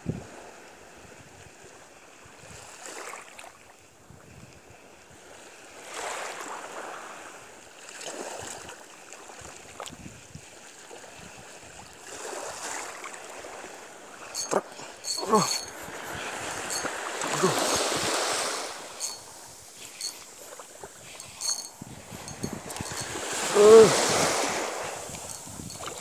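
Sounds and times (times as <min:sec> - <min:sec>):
small waves lapping: 0:04.8 - 0:26.0
wind gusts: 0:13.4 - 0:26.0.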